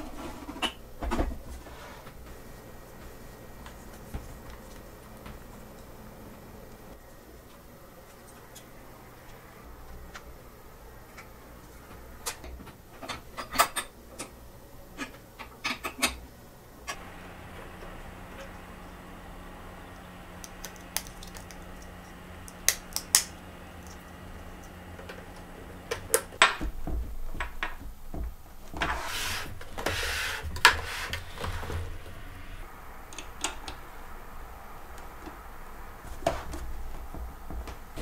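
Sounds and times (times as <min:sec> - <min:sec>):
scraping and rubbing: 0:28.7 - 0:32.7.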